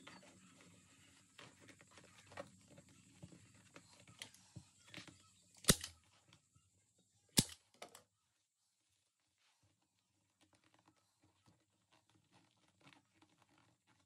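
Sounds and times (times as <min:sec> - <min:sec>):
staple gun firing: 0:05.6 - 0:05.9, 0:07.4 - 0:07.6
leather rustling: 0:09.6 - 0:14.0.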